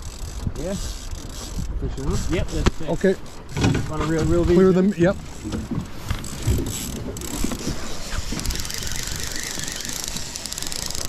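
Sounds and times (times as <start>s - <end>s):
fishing reel ticking whir: 0.0s - 3.6s, 6.2s - 11.0s.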